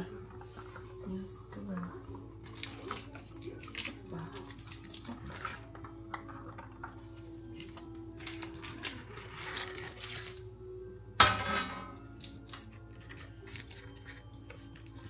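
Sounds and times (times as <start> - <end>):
background music: 0.0 - 15.0
dish clattering down: 11.2 - 12.0.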